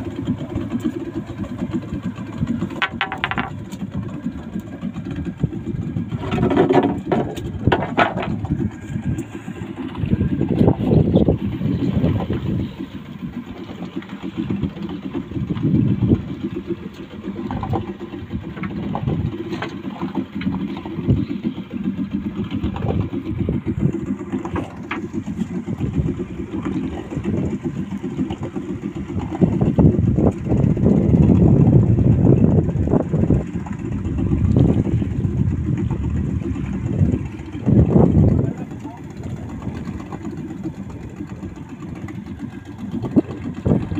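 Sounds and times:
boat engine idling: 0.0s - 43.9s.

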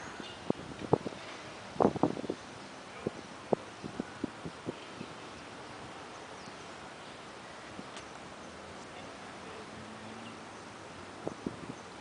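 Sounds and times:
wind noise on microphone: 0.0s - 6.5s, 11.0s - 12.0s.

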